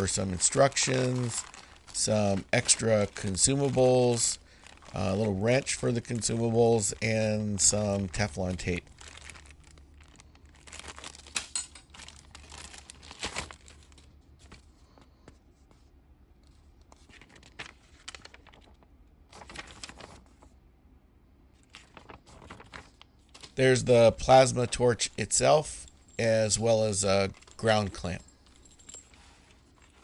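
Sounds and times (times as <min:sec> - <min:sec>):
plastic bag crinkling: 0:00.0 - 0:14.1, 0:21.6 - 0:30.0
paper pages rustling: 0:00.0 - 0:20.6, 0:21.6 - 0:25.5.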